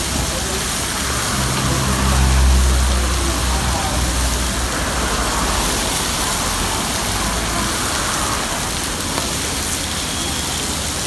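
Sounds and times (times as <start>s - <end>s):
squid sizzling on a griddle: 0.0s - 11.0s
low rumble: 0.3s - 7.9s.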